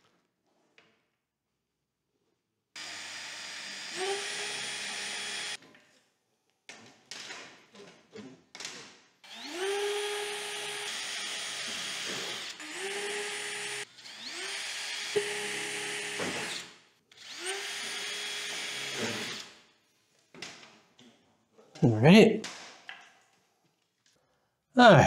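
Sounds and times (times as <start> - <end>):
cordless drill whining: 2.8 - 5.6, 9.2 - 19.6.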